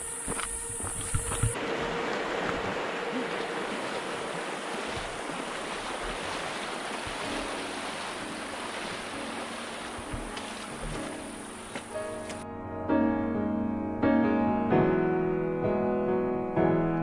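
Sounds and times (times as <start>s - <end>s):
water splashing around legs: 0.3s - 12.4s
creek rushing: 1.0s - 12.4s.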